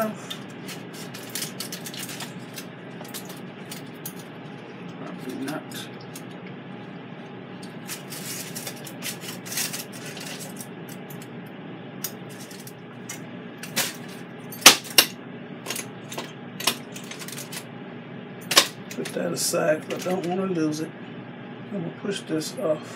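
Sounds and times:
aluminium foil rustling: 0.3 - 4.6, 7.6 - 10.7.

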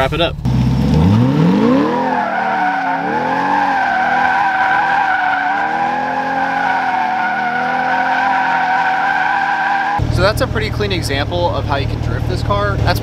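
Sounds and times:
car engine revving: 0.0 - 13.0
tires squealing: 1.0 - 10.4.

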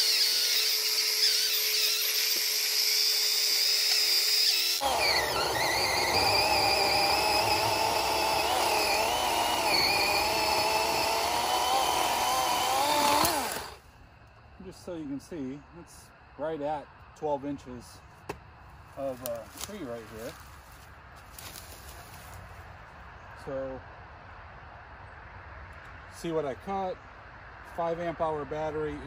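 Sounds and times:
chain cutting wood: 0.0 - 13.8
electric chainsaw whining: 0.0 - 13.8.

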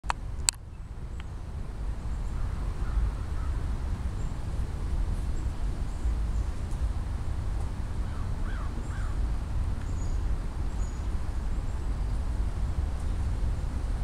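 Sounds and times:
faint crow caws: 2.4 - 3.6, 8.0 - 9.2.

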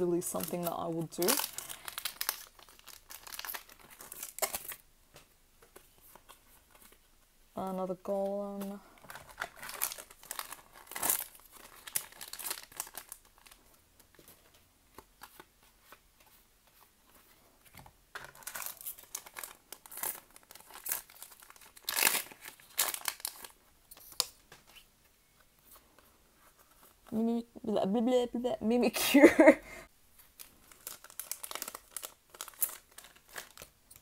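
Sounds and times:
foil wrappers crinkling and tearing: 0.2 - 4.8, 8.8 - 13.7, 18.2 - 24.4, 30.3 - 34.0.

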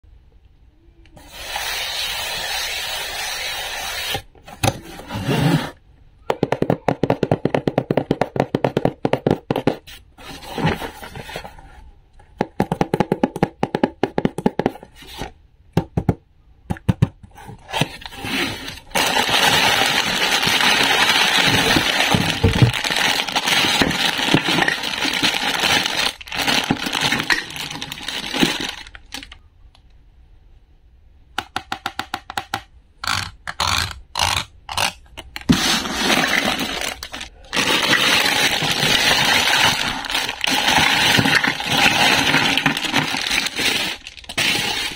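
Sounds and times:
plastic bag crinkling: 17.9 - 29.4, 35.5 - 44.9.

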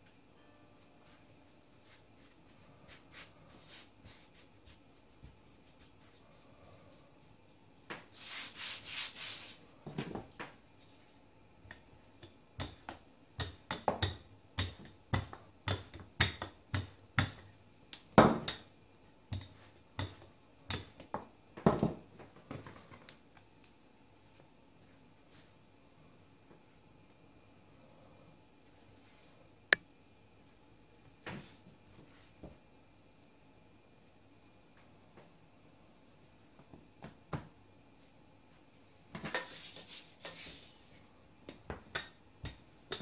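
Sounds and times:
hands rubbing floured dough: 1.1 - 9.8, 38.5 - 41.0
rolling pin knocking on dough: 12.2 - 17.5, 19.3 - 22.0.

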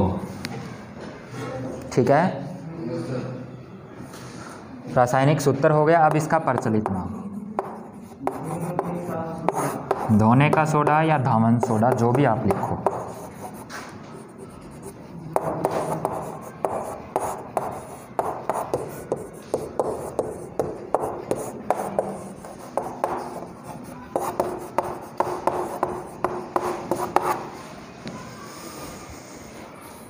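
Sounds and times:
chalk writing on a chalkboard: 6.0 - 27.7, 28.5 - 30.0.

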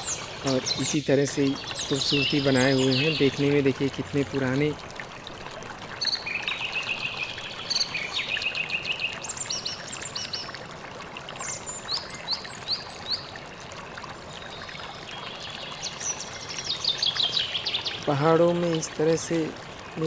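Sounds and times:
small birds chirping: 0.0 - 4.8, 6.0 - 10.6, 14.3 - 20.0
water trickling over rock: 0.0 - 20.0.

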